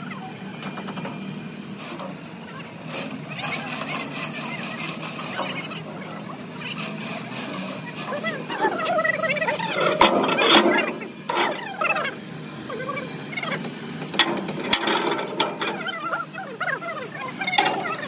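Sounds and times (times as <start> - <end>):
metal clanking: 9.5 - 11.8, 14.0 - 16.0, 17.5 - 18.0.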